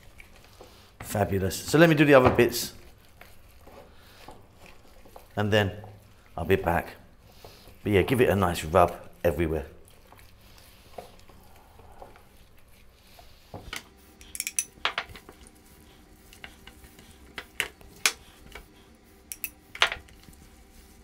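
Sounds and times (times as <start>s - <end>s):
wet squishing of meat: 0.0s - 14.2s.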